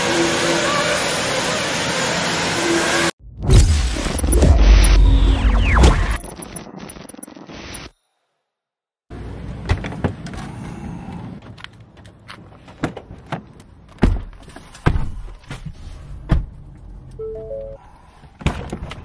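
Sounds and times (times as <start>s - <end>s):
three-note chime: 17.2s - 17.8s.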